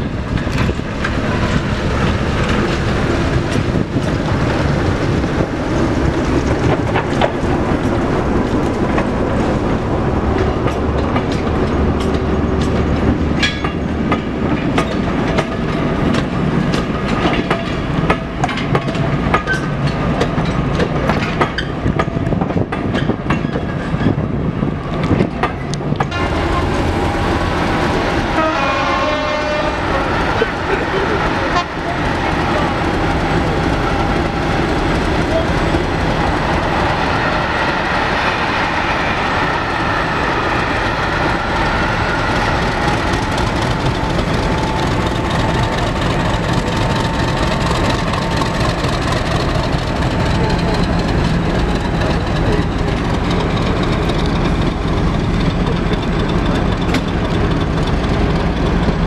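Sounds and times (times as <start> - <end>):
train engine and wheels rumbling: 0.0 - 59.0
wheels clicking over rail joints: 10.3 - 24.2, 41.8 - 59.0.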